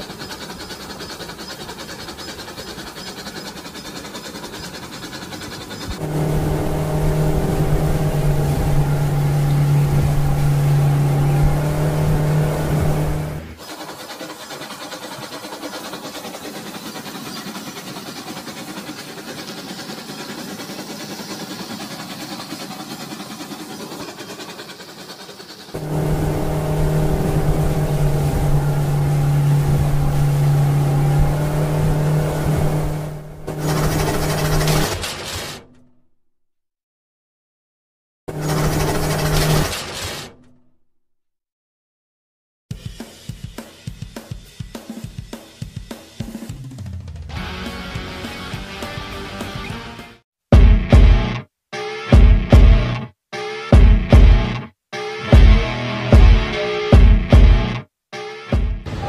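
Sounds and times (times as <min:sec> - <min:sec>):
toy motor humming: 0:00.0 - 0:06.2, 0:13.6 - 0:25.9.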